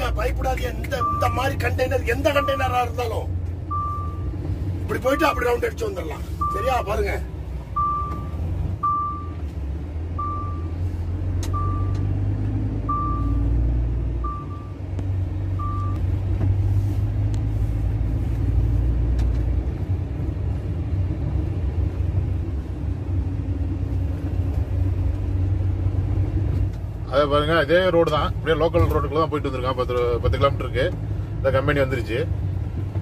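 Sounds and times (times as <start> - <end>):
truck engine and road rumble: 0.0 - 33.0
warning beep: 0.8 - 2.9, 3.7 - 4.3, 4.9 - 5.7, 6.4 - 7.0, 7.8 - 9.4, 10.2 - 10.7, 11.5 - 12.0, 12.9 - 13.4, 14.2 - 14.8, 15.6 - 16.0.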